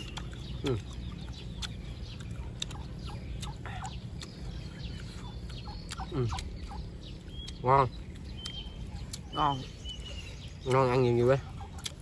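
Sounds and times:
poultry clucking and chirping: 0.0 - 12.0.

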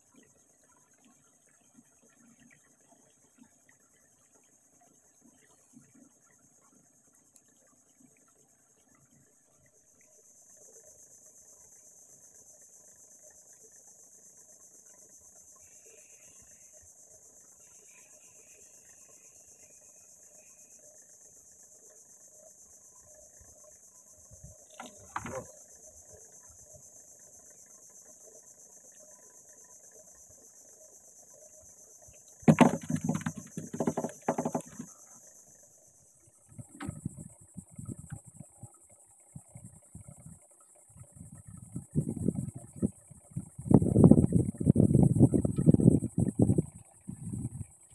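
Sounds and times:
insects buzzing: 0.0 - 47.9
knocks and rattles: 24.7 - 25.5, 32.5 - 34.9.

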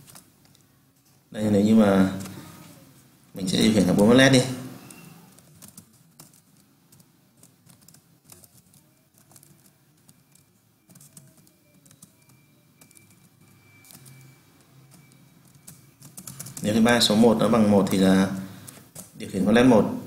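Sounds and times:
typing on a computer keyboard: 4.8 - 16.8.

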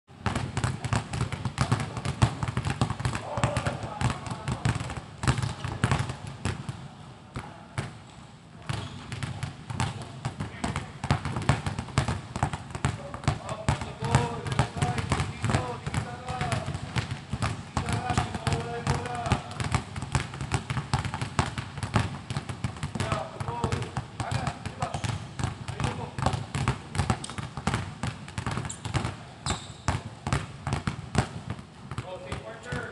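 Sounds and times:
basketballs bouncing on wooden floor: 0.1 - 8.0, 8.6 - 32.9
brief high squeak: 29.4 - 29.8.

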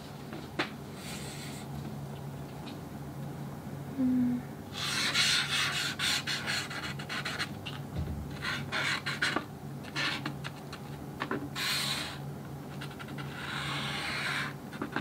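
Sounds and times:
rubbing and scratching on board: 4.8 - 7.8, 8.4 - 15.0.

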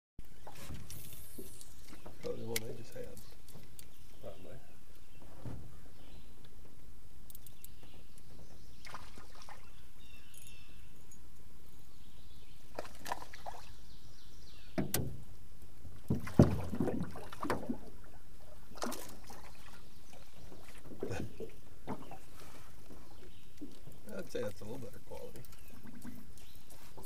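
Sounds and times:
knocks and clunks in aluminium boat: 14.8 - 15.3, 16.0 - 17.8, 20.5 - 22.2.

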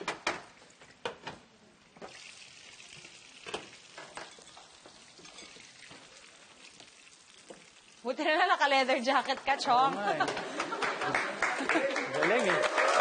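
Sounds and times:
burger patty sizzling in pan: 2.0 - 9.5.

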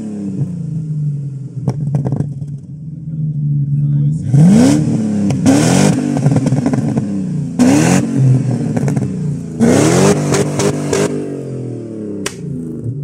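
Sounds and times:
engine revving through loud exhaust: 0.0 - 1.5, 4.1 - 13.0.

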